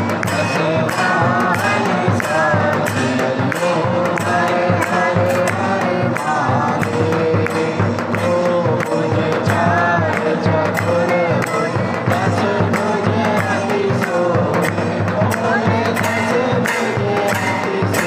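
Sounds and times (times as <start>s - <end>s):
devotional hymn singing: 0.0s - 18.0s
quick percussion beat: 0.0s - 18.0s.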